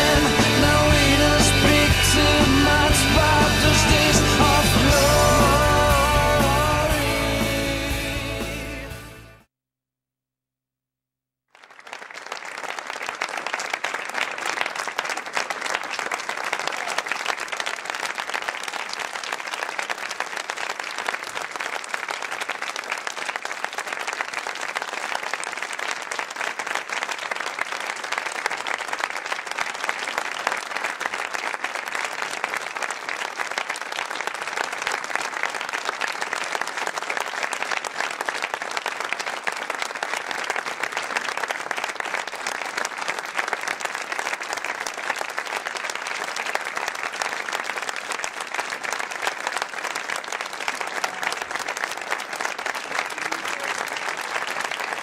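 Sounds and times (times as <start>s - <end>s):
audience applauding: 0.0s - 8.6s, 11.6s - 55.0s.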